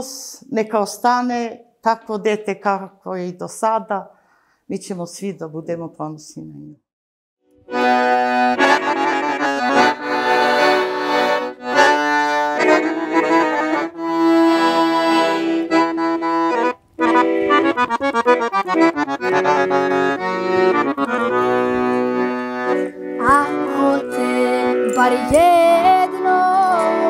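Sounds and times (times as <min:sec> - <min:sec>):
accordion playing a tune: 0:07.5 - 0:27.0.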